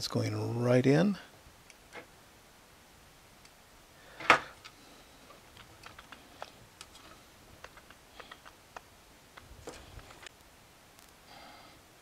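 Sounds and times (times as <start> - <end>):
small clicks and taps: 5.5 - 10.3.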